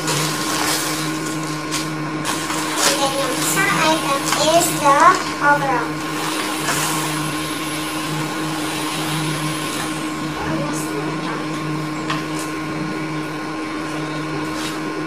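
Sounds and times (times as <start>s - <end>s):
plastic bag rustling: 0.0s - 5.4s
appliance motor hum: 0.0s - 15.0s.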